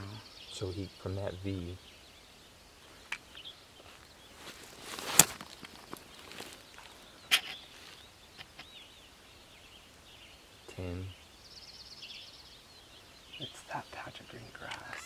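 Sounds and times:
faint bird chirps: 0.0 - 15.0
clothing rustling: 4.4 - 6.7.

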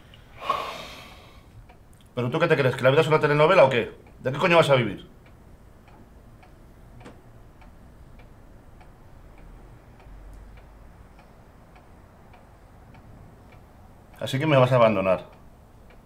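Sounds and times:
clock ticking: 1.6 - 16.0.

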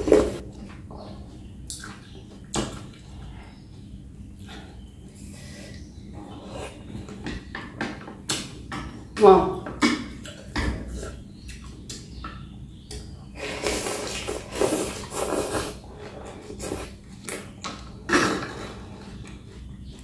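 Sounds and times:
chewing and slurping noodles: 13.4 - 20.0.

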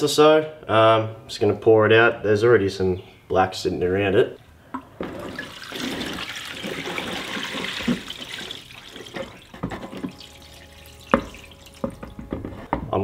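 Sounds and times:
dripping: 4.8 - 12.2
liquid pouring into plastic tub: 5.0 - 12.1.

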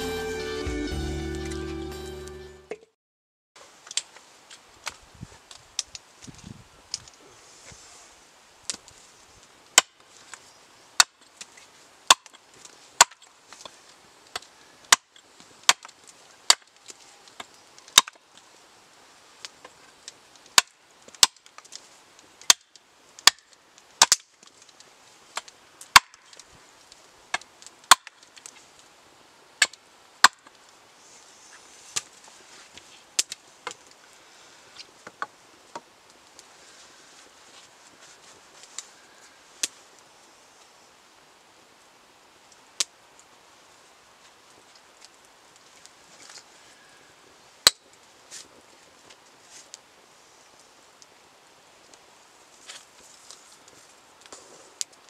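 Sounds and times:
hatchet chopping wood: 9.8 - 10.0, 11.0 - 11.2, 12.1 - 12.4, 13.0 - 13.3, 14.3 - 16.7, 17.9 - 18.2, 20.5 - 21.4, 22.4 - 24.3, 25.4 - 26.3, 27.4 - 28.2, 29.6 - 30.5.

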